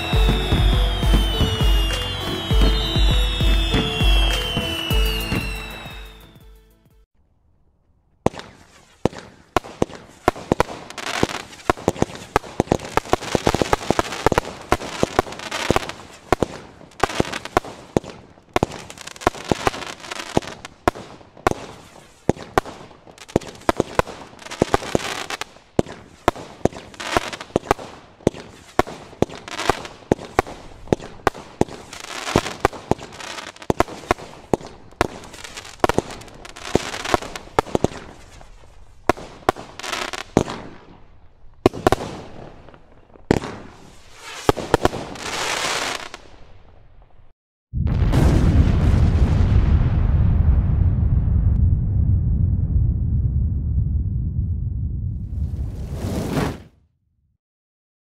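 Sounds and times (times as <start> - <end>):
firework launch pops and bursts: 0.0 - 6.2, 8.2 - 41.0, 41.6 - 46.5, 55.3 - 56.8.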